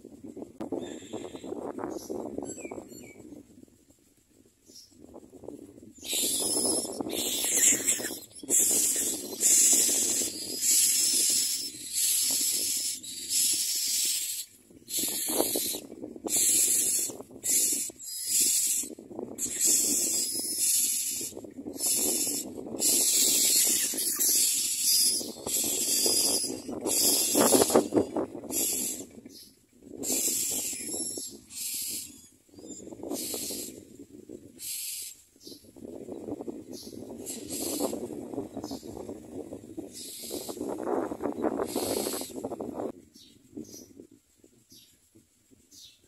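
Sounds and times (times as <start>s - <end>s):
nestlings begging with hissing calls: 6.0s - 33.8s, 34.6s - 35.6s, 36.7s - 38.9s, 39.9s - 40.8s, 41.6s - 42.4s.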